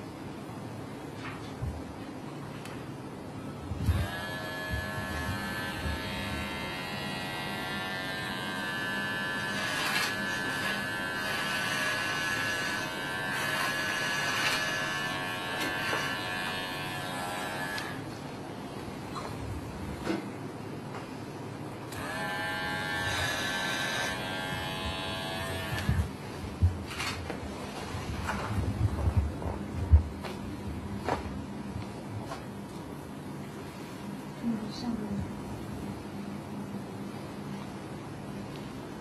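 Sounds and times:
electric hair clipper buzzing: 3.8s - 18.1s, 21.9s - 26.2s.

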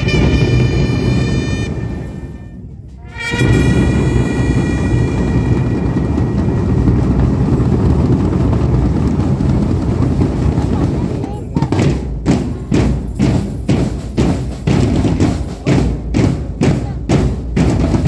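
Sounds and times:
brass chord: 0.0s - 5.8s
drum roll: 0.0s - 18.0s.

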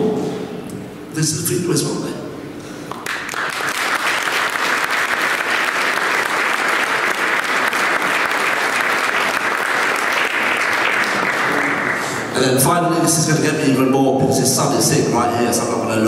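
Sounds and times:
audience applauding: 2.9s - 12.4s.

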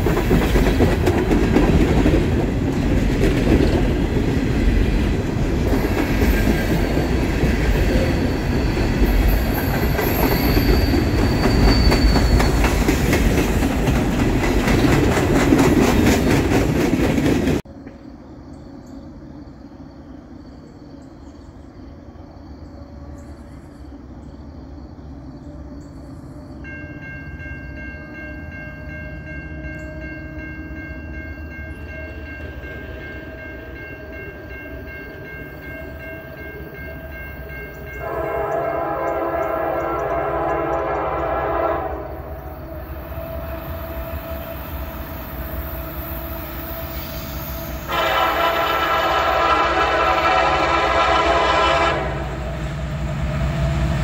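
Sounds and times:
distant locomotive horn: 25.5s - 31.2s, 32.5s - 54.0s.

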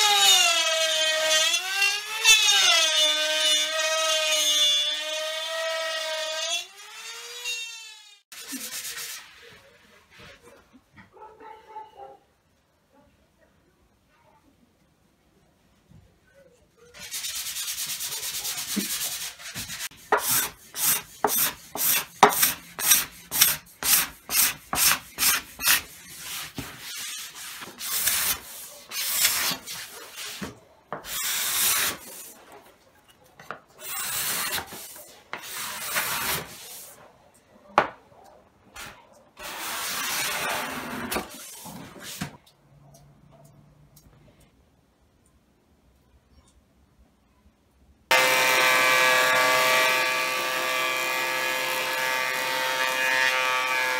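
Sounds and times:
card scraper shaving wood: 18.6s - 32.2s.

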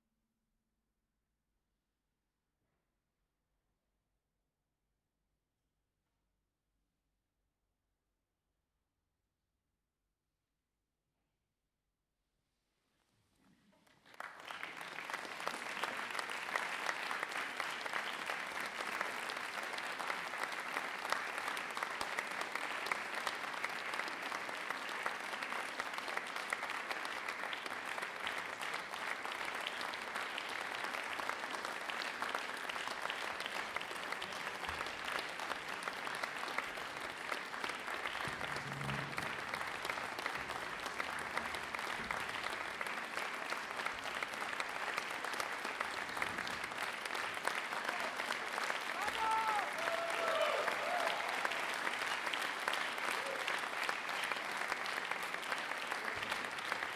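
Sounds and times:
audience applauding: 13.8s - 56.9s.

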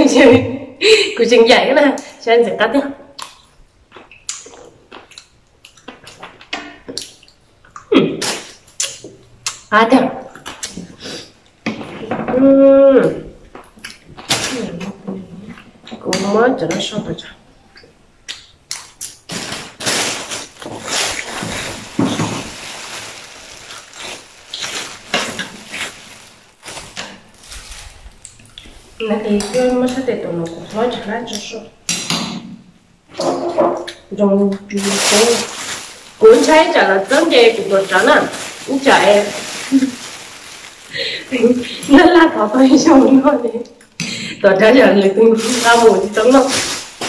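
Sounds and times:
person chewing soft fruit: 3.2s - 7.9s
plastic bag crinkling: 19.0s - 31.2s, 34.7s - 43.3s, 44.8s - 47.0s.

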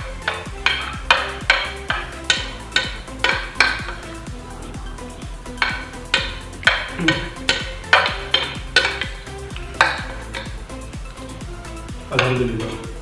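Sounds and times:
faint background music: 0.0s - 13.0s.

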